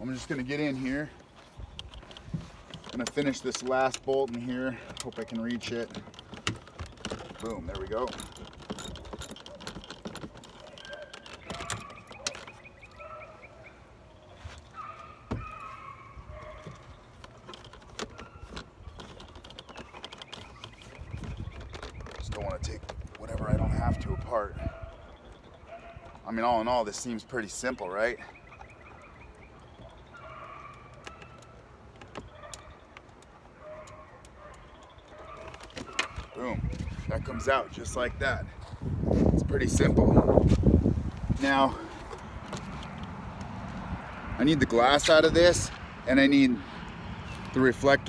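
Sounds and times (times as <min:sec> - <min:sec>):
birds chirping: 0:00.0 - 0:48.0
faint clicks and knocks: 0:16.4 - 0:23.6.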